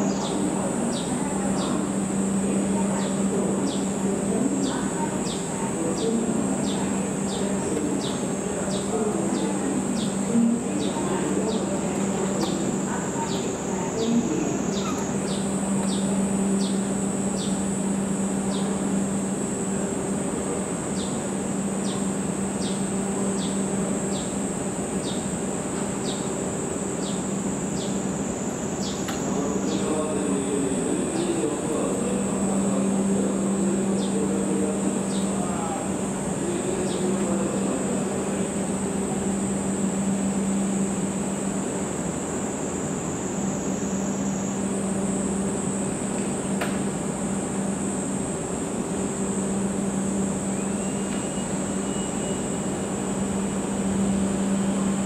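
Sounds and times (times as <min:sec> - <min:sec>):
cicadas droning: 0:00.0 - 0:55.0
short repeating insect call: 0:12.5 - 0:19.0, 0:49.4 - 0:55.0.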